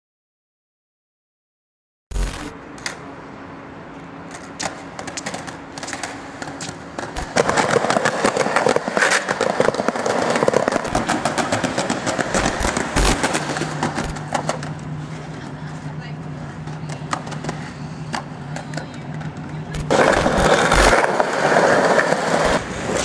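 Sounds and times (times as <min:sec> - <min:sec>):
skateboard wheels rolling over tiles: 0:04.3 - 0:15.9, 0:16.5 - 0:23.0.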